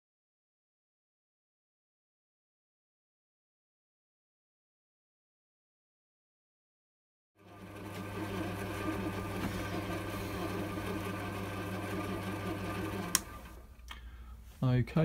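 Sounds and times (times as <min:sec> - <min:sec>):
lathe motor hum with whirring gears: 0:07.4 - 0:13.7
lathe switch click: 0:12.9 - 0:13.5.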